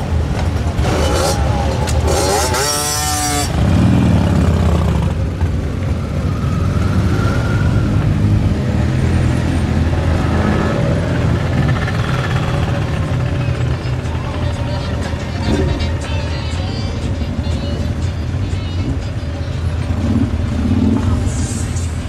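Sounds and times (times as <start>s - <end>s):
motorcycles rolling past: 0.0s - 16.8s
motorcycle engine revving: 0.5s - 16.8s, 19.8s - 21.5s.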